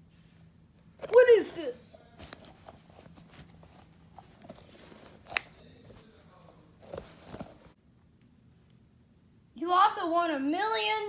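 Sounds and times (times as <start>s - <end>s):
soft rustles and scrapes on fabric: 2.0s - 7.8s.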